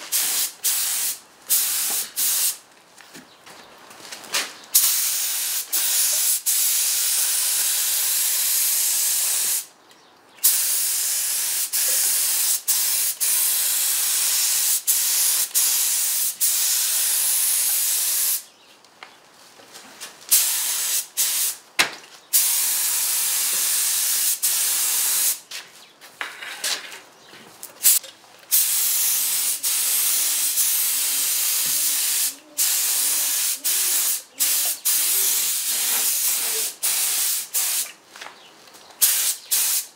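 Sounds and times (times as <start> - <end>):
spray gun hissing: 0.0 - 2.6, 4.8 - 9.7, 10.4 - 18.4, 20.3 - 21.6, 22.3 - 25.4, 27.8 - 37.9, 39.0 - 39.9.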